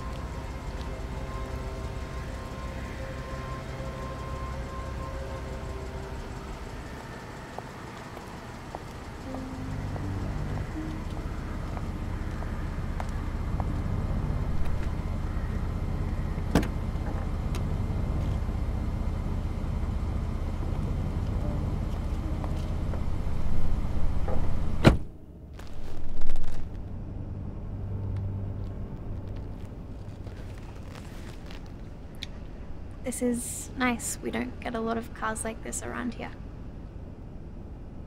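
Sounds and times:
car engine humming: 0.0s - 38.0s
car door slamming: 24.3s - 25.1s.

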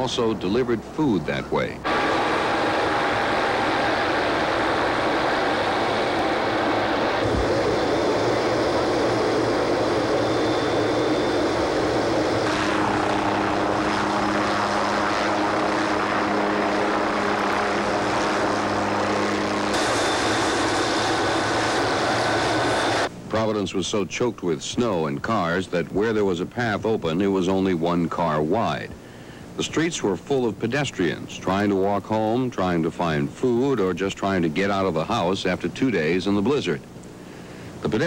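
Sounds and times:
helicopter engine and rotor: 1.9s - 23.1s.

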